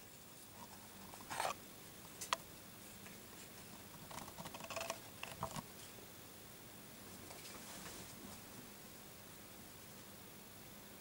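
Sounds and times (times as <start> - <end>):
hamster gnawing cardboard: 3.1 - 5.7.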